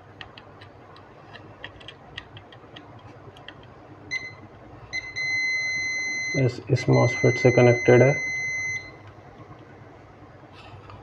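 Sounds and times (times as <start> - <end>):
multimeter beeping: 4.1 - 9.0.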